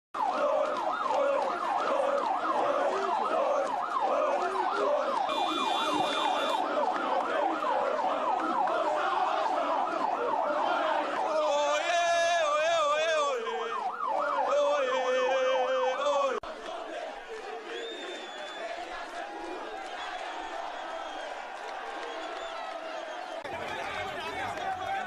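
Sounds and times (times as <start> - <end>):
siren rapid pitch sweeps: 0.9 - 8.6.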